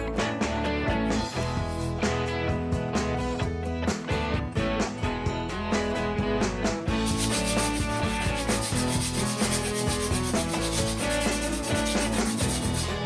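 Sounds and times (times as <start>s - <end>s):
sanding sponge rubbing wood: 7.0s - 13.0s.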